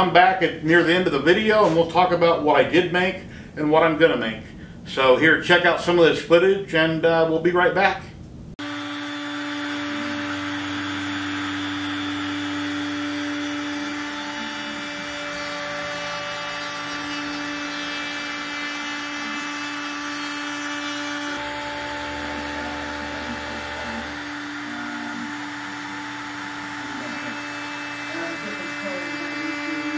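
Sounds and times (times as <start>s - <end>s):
dust extractor running: 8.6s - 29.9s
router spindle whine: 8.6s - 29.9s
low machine hum: 21.2s - 29.9s.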